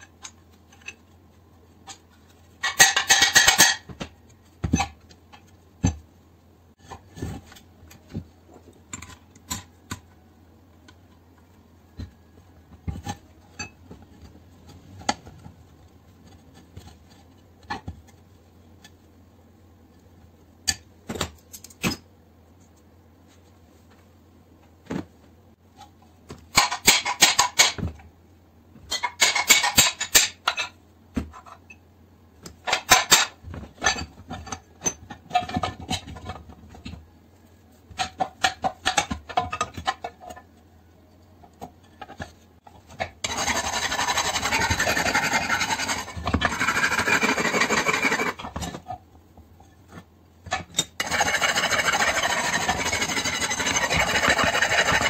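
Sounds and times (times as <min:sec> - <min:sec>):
tool scraping metal: 0:02.6 - 0:03.9, 0:42.9 - 0:48.8, 0:50.5 - 0:55.0
harsh rasping: 0:43.2 - 0:48.4, 0:51.0 - 0:55.0.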